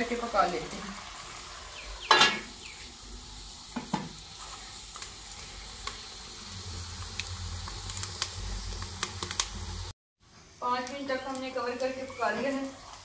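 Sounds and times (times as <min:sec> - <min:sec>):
cooking pot hissing: 0:00.0 - 0:13.0
wood fire crackling and popping: 0:03.8 - 0:13.0.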